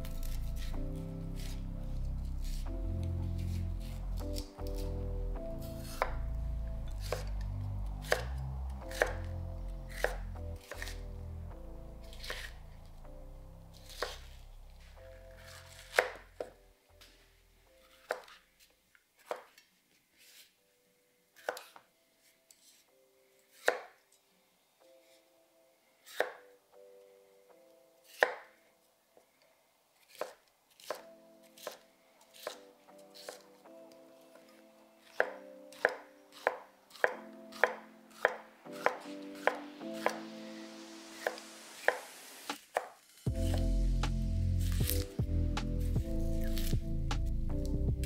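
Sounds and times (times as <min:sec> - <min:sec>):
knife chopping celery on a board: 0:00.1 - 0:01.6, 0:02.4 - 0:05.0, 0:05.6 - 0:06.3, 0:06.9 - 0:11.1, 0:12.0 - 0:12.6, 0:13.8 - 0:14.3, 0:15.4 - 0:16.6, 0:17.9 - 0:18.4, 0:19.2 - 0:19.6, 0:21.4 - 0:21.8, 0:23.5 - 0:23.9, 0:26.1 - 0:26.5, 0:28.0 - 0:28.5, 0:30.1 - 0:33.5, 0:35.0 - 0:40.3, 0:41.2 - 0:47.3.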